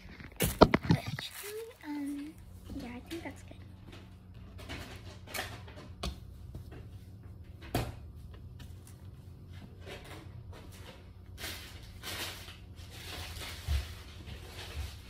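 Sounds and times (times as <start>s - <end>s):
steady low hum: 0.0s - 15.0s
faint rustling of plush toy: 0.8s - 3.0s.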